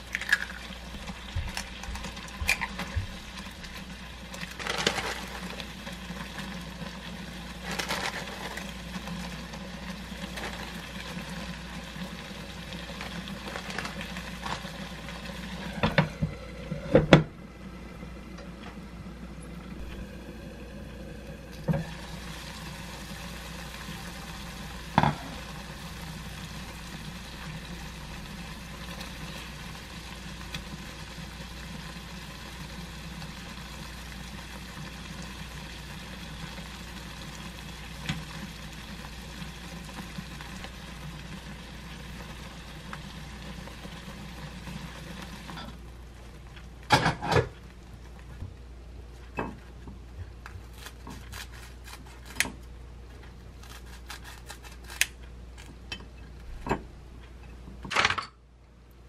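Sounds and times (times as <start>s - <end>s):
sauce sizzling in a frying pan: 0.0s - 17.8s, 19.8s - 46.0s
scissors cutting crisp toast: 53.6s - 55.7s.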